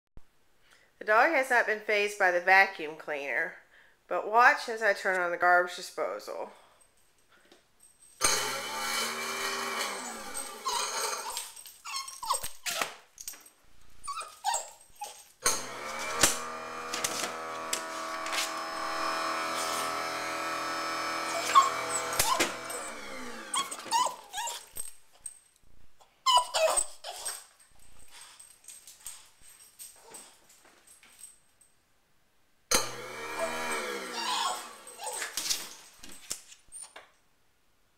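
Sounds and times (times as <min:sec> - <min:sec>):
garbage disposal motor humming: 0:08.2 - 0:11.2, 0:15.4 - 0:24.0, 0:32.7 - 0:35.4.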